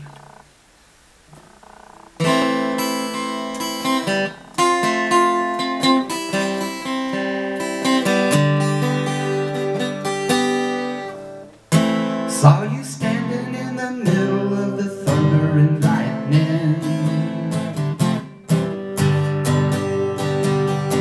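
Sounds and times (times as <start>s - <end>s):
acoustic guitar strummed: 1.3s - 21.0s.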